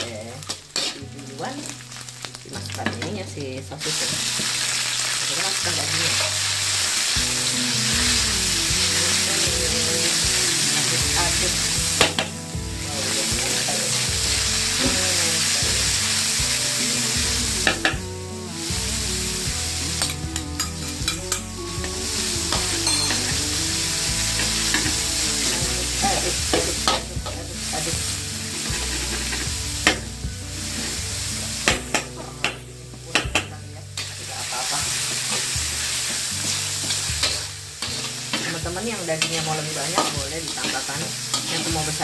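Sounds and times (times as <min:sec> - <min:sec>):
spatula scraping and clacking wok: 0:00.0 - 0:03.2, 0:34.0 - 0:42.0
meat and garlic sizzling in oil: 0:00.0 - 0:42.0.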